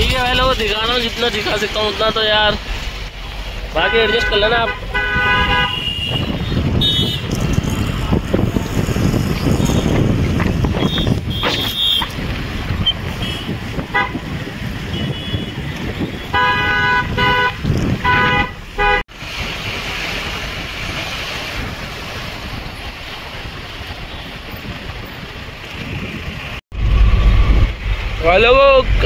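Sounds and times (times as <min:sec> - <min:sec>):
truck road and engine noise: 0:00.0 - 0:29.0
vehicle horns honking: 0:03.8 - 0:07.4, 0:10.7 - 0:12.2, 0:13.1 - 0:19.0.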